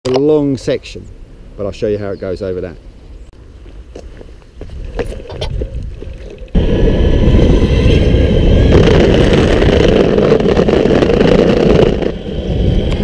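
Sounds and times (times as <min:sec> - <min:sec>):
wheels rattling on cobblestones: 0:08.4 - 0:13.0.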